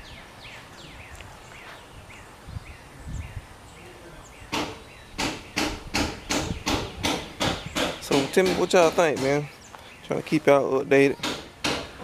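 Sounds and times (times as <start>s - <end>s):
low wind rumble: 0.0s - 8.0s
rapid loud sharp sounds: 4.5s - 9.5s, 11.2s - 12.0s.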